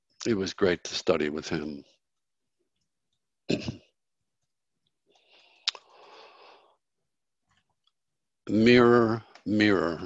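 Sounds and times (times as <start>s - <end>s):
man coughing: 3.5s - 3.8s.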